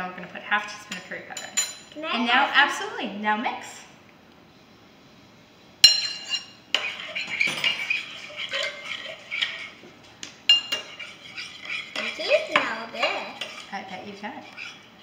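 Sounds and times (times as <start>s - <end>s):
spoon clinking against bowl: 5.8s - 9.6s, 10.5s - 12.1s.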